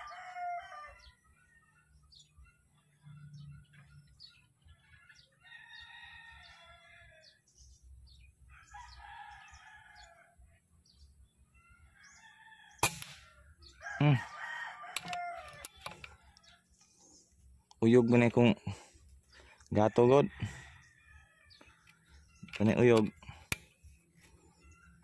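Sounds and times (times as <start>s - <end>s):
roosters crowing: 0.0s - 2.3s, 3.1s - 10.6s, 11.5s - 16.8s, 17.8s - 23.6s
air rifle shot: 12.8s - 13.3s
clicks: 15.0s - 16.2s, 21.8s - 23.7s.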